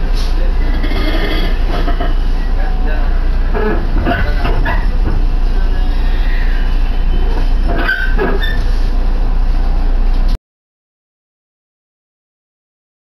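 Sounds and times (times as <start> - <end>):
train low rumble: 0.0 - 10.4
high brake squeal: 0.6 - 2.7, 5.6 - 8.8.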